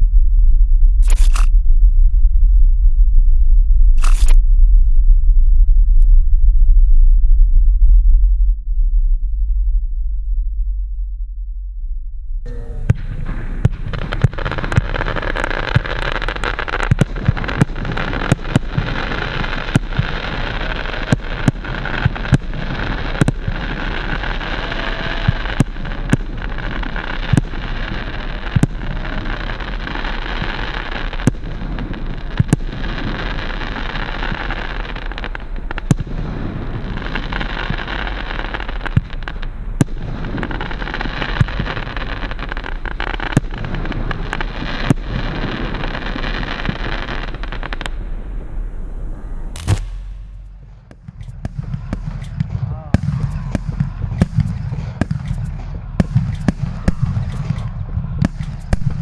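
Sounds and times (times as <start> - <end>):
fireworks crackle: 1.0 - 1.5, 4.0 - 4.4, 12.5 - 48.6, 49.6 - 59.0
fireworks sharp reports: 12.5 - 47.8, 49.6 - 59.0.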